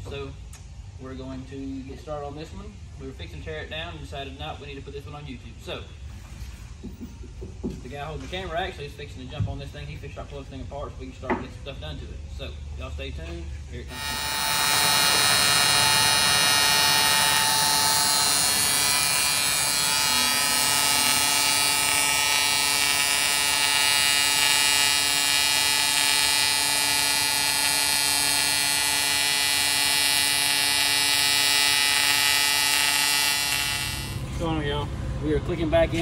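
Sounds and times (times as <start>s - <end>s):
welding arc buzzing hum: 13.8s - 34.9s.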